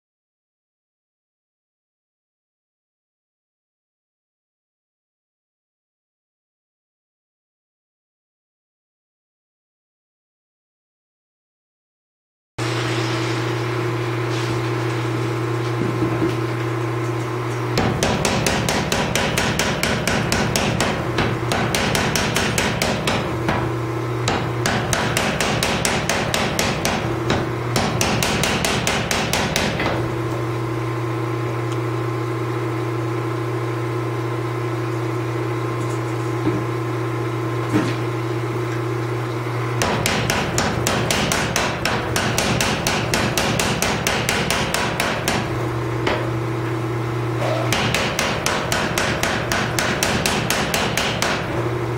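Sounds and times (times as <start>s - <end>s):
steady machine hum: 12.6s - 51.9s
power hammer pounding metal: 17.8s - 30.2s, 39.8s - 46.4s, 47.4s - 51.9s.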